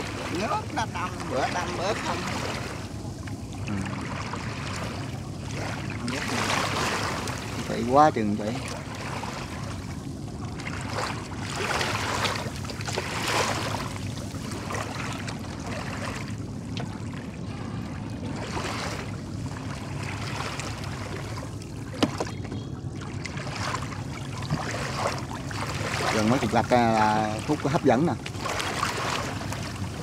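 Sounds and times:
steady low hum: 0.0s - 30.0s
water splashing and trickling: 0.0s - 30.0s.

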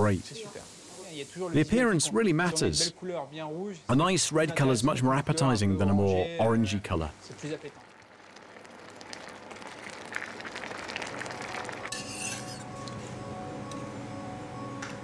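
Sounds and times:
soft background music: 11.4s - 15.0s
spatula scraping frying pan: 11.9s - 12.8s
spoon clinking in saucepan: 11.9s - 13.0s.

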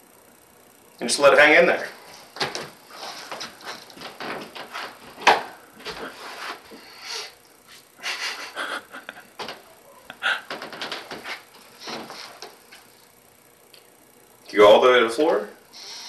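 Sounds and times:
breathy rustling: 10.2s - 12.4s.

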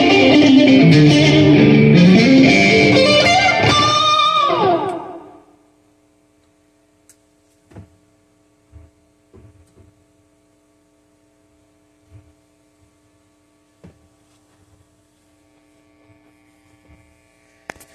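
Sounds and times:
guitar amp mains hum: 0.0s - 17.9s
guitar dull thumps and knocks: 8.7s - 9.9s.

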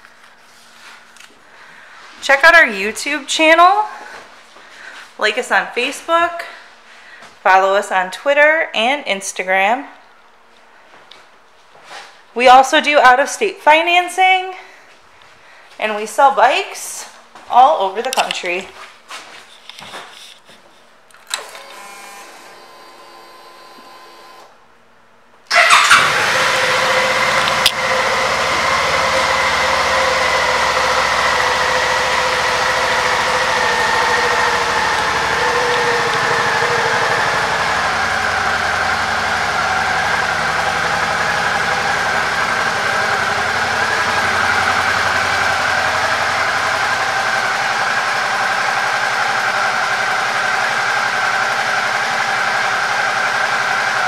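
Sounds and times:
motorcycle engine cranking and idling: 25.5s - 54.0s.

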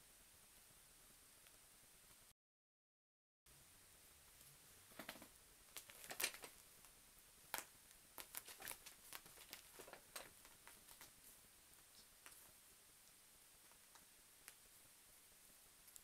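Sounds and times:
kitten claws scratching fabric: 8.2s - 11.4s.

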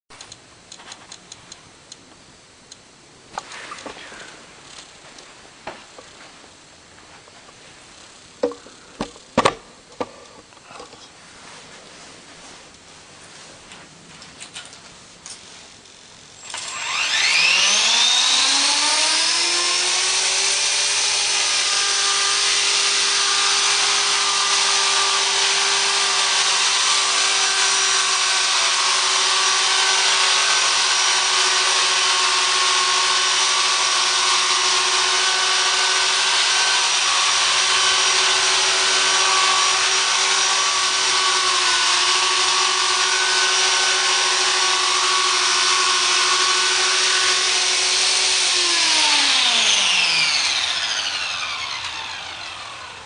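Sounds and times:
rc helicopter motor whine: 16.4s - 53.0s.

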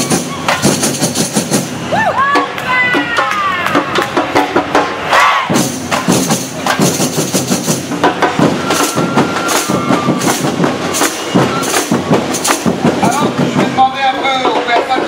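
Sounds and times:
percussion band drumming: 0.0s - 15.0s.

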